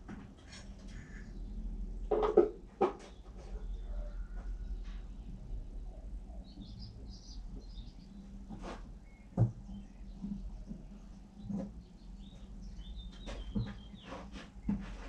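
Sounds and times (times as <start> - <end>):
small birds chirping: 3.0 - 15.0.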